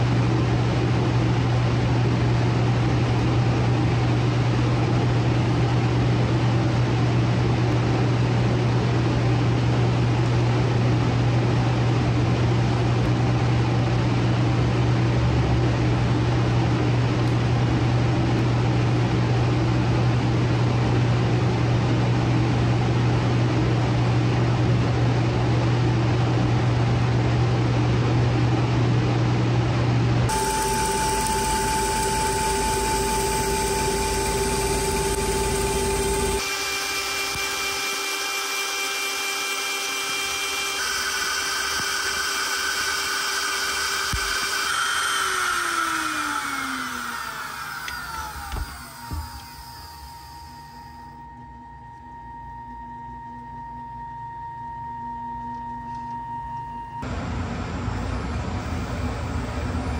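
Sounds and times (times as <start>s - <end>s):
low machine hum: 0.0s - 59.9s
lathe cutter high whine: 30.3s - 57.0s.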